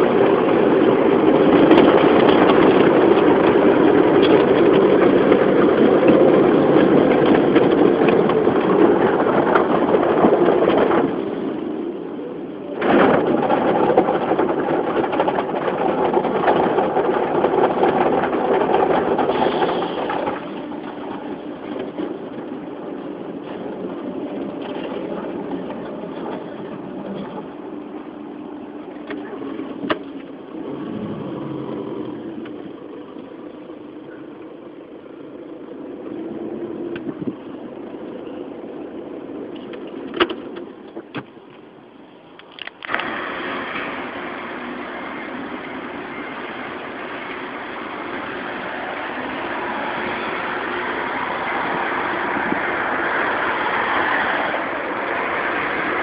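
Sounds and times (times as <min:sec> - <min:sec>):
loud rushing noise: 0:00.0 - 0:33.1, 0:42.9 - 0:56.0
diesel engine idling and pulling away: 0:13.6 - 0:56.0.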